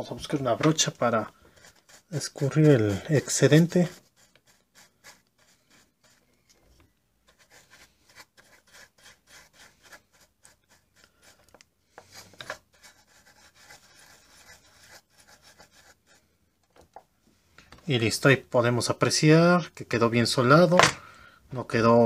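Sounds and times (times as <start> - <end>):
brush scrubbing circuit board: 0.3 - 6.3, 7.2 - 16.3.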